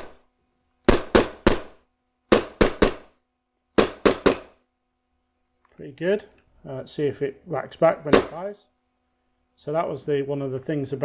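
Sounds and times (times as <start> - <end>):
airsoft pistol shots: 0.8 - 3.2, 3.8 - 4.6, 8.1 - 8.4.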